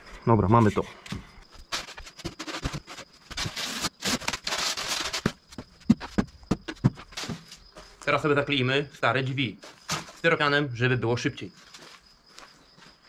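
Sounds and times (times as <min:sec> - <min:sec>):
foam boards scraping and rubbing: 0:01.5 - 0:07.6
sharp knocks: 0:05.7 - 0:07.5.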